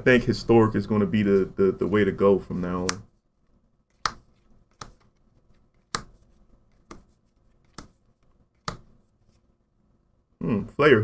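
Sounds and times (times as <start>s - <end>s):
cards snapping onto piles: 3.9s - 5.2s, 5.8s - 6.2s, 6.8s - 8.0s, 8.6s - 8.9s.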